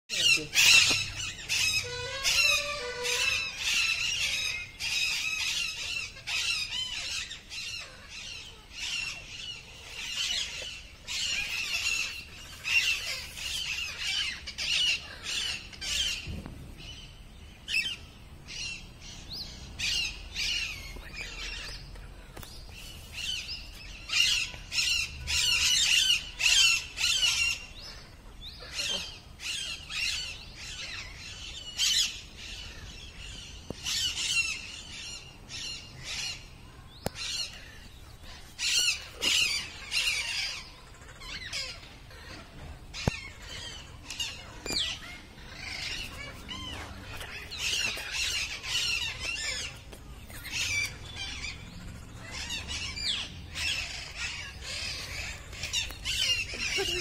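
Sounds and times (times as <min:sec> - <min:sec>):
parrots screeching: 0:00.1 - 0:16.3, 0:24.1 - 0:32.9, 0:37.1 - 0:57.0.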